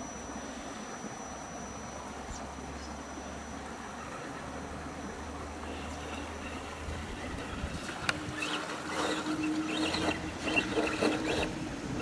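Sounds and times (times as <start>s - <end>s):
electric motor whining: 5.6s - 12.0s.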